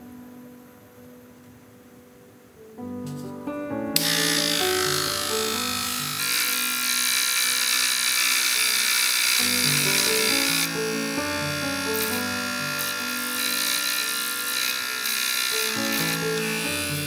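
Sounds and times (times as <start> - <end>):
small polisher motor whirring: 4.0 - 17.0.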